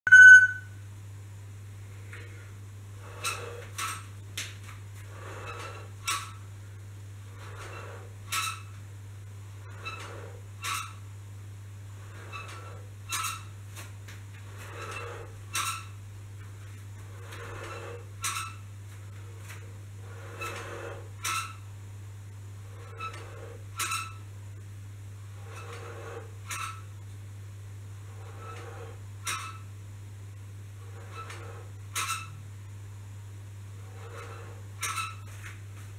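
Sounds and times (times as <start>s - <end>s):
short electronic beep: 0.1s - 0.7s
spring exerciser scraping: 2.1s - 6.5s, 7.2s - 8.8s, 9.6s - 11.0s, 11.9s - 21.7s, 22.6s - 24.3s, 25.2s - 27.0s, 27.9s - 29.7s, 30.8s - 32.4s, 33.7s - 35.9s.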